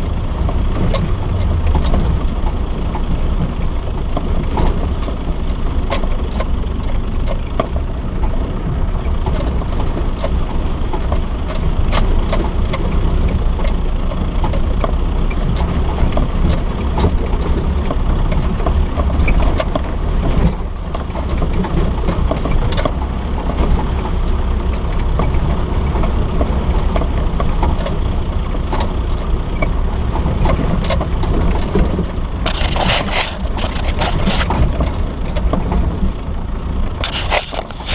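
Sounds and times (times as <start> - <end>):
low engine rumble: 0.0 - 37.9
tyres on gravel: 31.5 - 35.1, 36.9 - 37.9.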